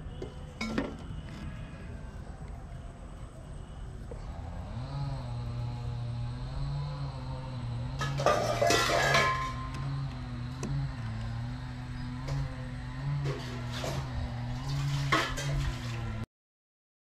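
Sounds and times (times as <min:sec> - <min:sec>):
low wavering hum: 0:00.0 - 0:16.2
metal pot clattering and scraping: 0:08.0 - 0:09.7, 0:13.2 - 0:16.2.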